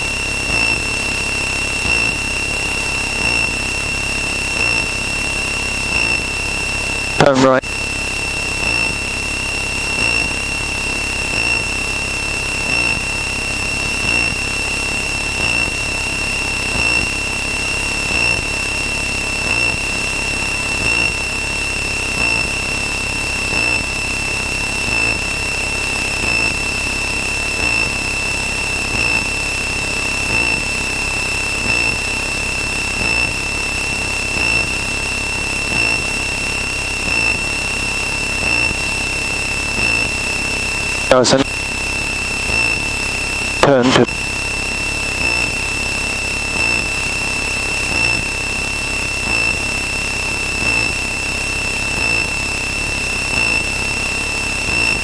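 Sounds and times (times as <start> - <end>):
faint pulse: 0.0 - 18.7, 27.5 - 29.6, 30.2 - 32.2, 34.2 - 37.7, 38.3 - 40.3, 42.4 - 48.4
aircraft engine and propeller drone: 0.0 - 54.7
steady high-pitched tone: 0.0 - 55.0.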